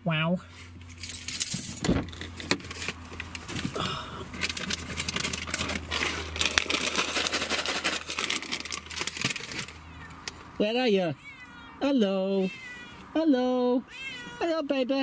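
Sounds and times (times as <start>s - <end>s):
plastic packet crinkling: 4.4s - 9.8s.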